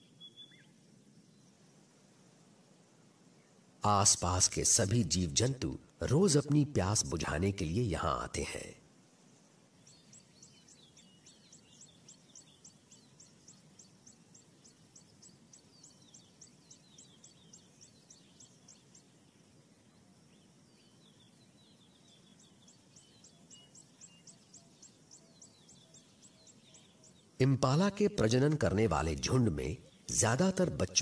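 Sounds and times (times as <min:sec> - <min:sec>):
high thin bird chirps: 0:09.3 - 0:31.0.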